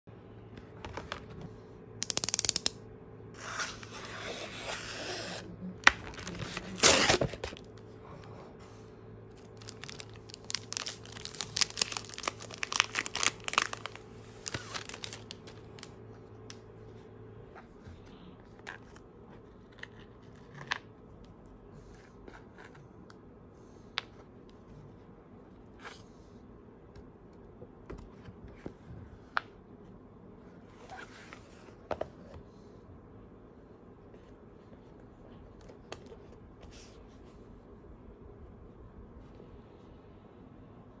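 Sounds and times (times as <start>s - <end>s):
plastic bag crinkling: 5.8s - 7.6s, 9.4s - 16.0s
card mailer ripping: 5.9s - 7.6s, 9.6s - 15.9s.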